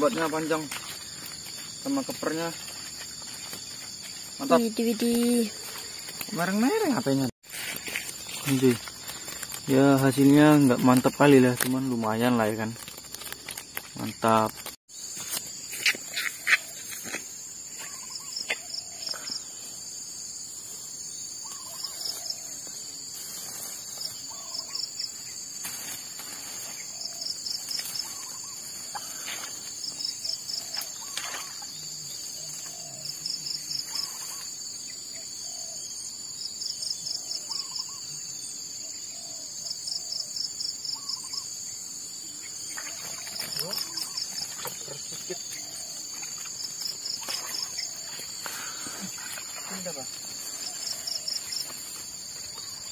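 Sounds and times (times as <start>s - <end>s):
high-pitched insect drone: 13.5s - 52.9s.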